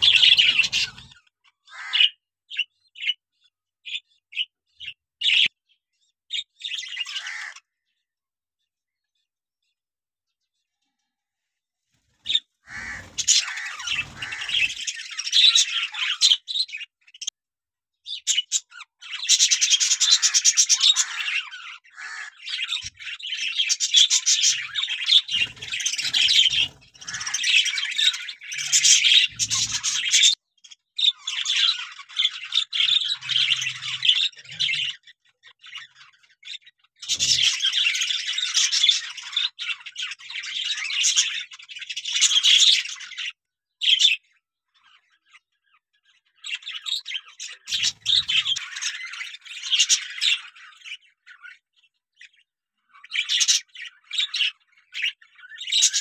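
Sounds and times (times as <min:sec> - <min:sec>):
budgerigars chattering and squawking: 0:00.0 - 0:03.2, 0:03.9 - 0:05.5, 0:06.3 - 0:07.7, 0:12.2 - 0:17.3, 0:18.1 - 0:30.4, 0:31.0 - 0:44.2, 0:46.4 - 0:51.6, 0:52.2 - 0:56.0.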